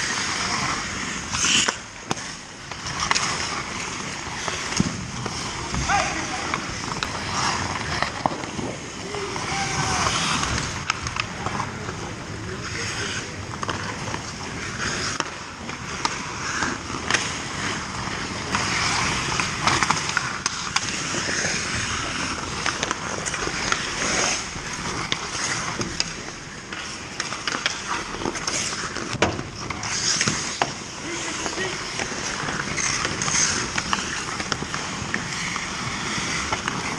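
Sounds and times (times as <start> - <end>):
clacks of sticks and pucks: 0.0 - 36.9
skates scraping on ice: 0.0 - 36.9
players shouting: 5.7 - 6.8, 9.0 - 10.7.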